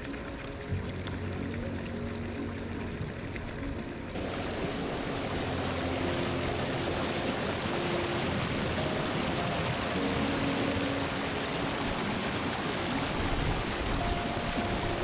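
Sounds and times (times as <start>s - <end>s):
mountain stream rushing: 0.0s - 15.0s.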